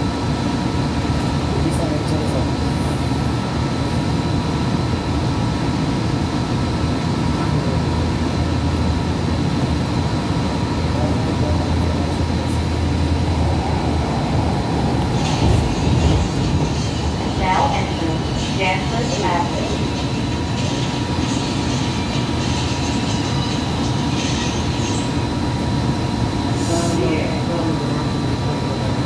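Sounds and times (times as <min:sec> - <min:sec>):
high whine tones: 0:06.7 - 0:27.6
train wheels rumbling on rails: 0:07.3 - 0:29.0.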